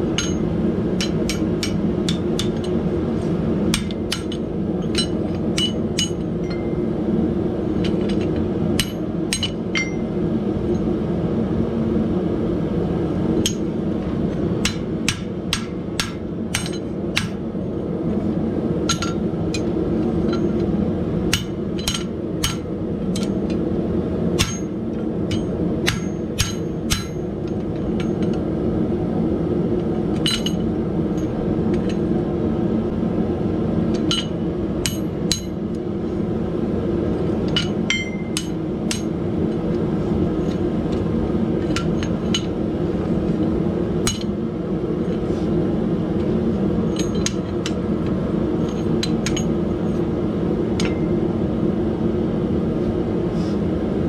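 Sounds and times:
steady low rumble: 0.0 - 54.0
hammer striking iron on anvil: 0.1 - 2.8, 3.7 - 6.9, 7.9 - 10.1, 13.4 - 13.7, 14.6 - 17.4, 18.9 - 19.7, 21.3 - 23.5, 24.4 - 28.4, 30.2 - 32.0, 34.0 - 35.6, 37.5 - 39.2, 44.0 - 44.4, 46.9 - 47.8, 48.6 - 49.6, 50.8 - 51.1.

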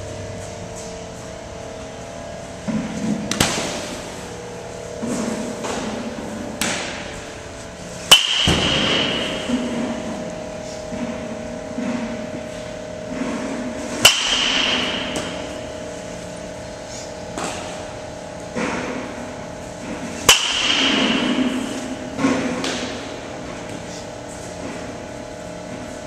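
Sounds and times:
steady hum: 0.0 - 26.0
baseball bat cracking ball: 2.8 - 4.1, 5.0 - 7.3, 8.0 - 10.2, 14.0 - 15.7, 17.3 - 17.9, 20.2 - 23.8.

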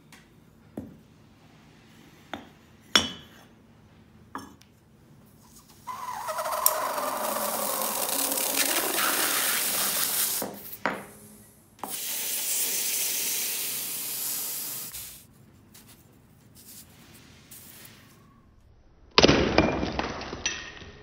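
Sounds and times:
hot metal sizzling on ice: 5.8 - 10.6, 11.8 - 15.2.

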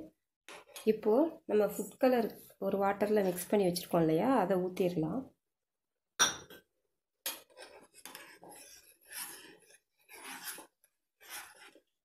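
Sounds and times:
ladle scraping metal pan: 7.3 - 12.0.

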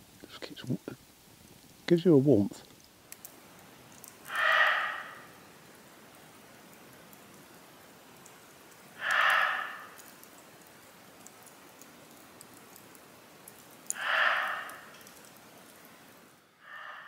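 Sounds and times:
wood fire crackling: 0.0 - 17.0
deer barking: 4.3 - 5.4, 9.0 - 10.1, 13.9 - 14.9.

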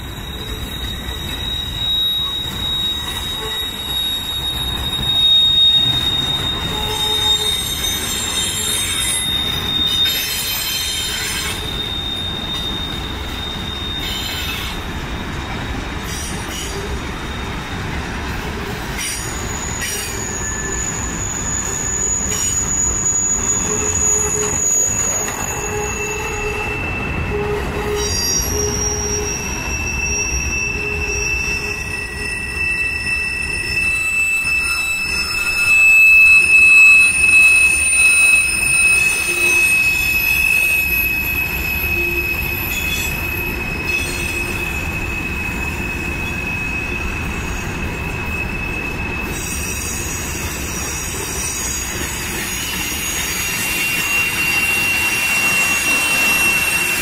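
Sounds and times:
steel wheels squealing on rails: 0.0 - 57.0
train cars rumbling: 0.0 - 57.0.

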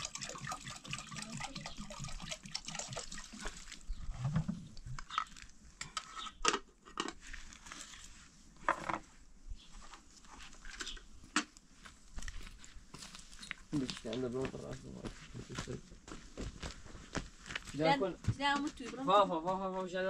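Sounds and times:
water pouring into a kettle: 0.0 - 3.9.

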